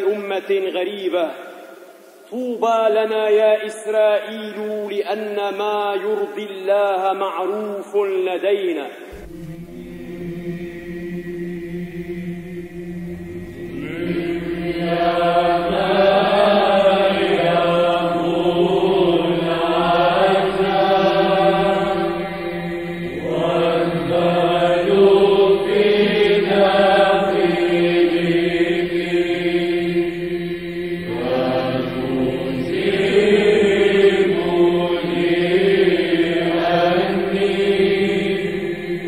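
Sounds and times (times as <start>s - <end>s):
choir chanting melody: 9.1s - 39.0s
held vocal drone: 9.1s - 39.0s.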